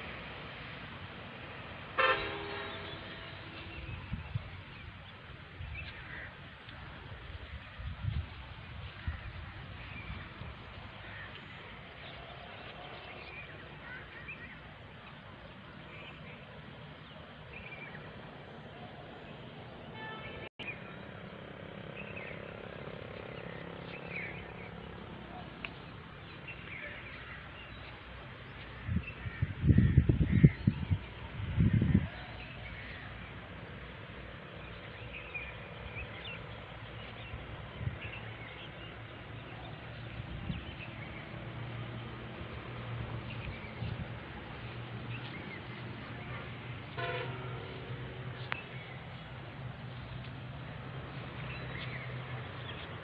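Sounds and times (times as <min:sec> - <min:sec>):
vehicle horn toot: 0:02.0 - 0:03.9, 0:19.9 - 0:20.5, 0:46.9 - 0:47.7.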